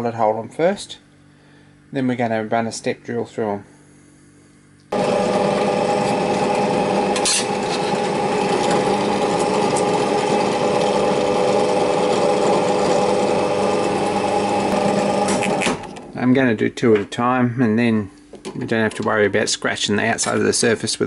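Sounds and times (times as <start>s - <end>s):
drill press drilling into steel: 5.0s - 16.1s.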